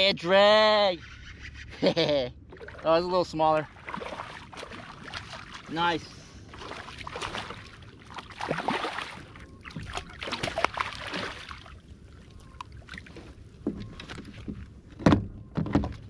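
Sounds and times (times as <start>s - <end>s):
fish splashing in water: 3.7s - 5.7s, 6.5s - 13.1s.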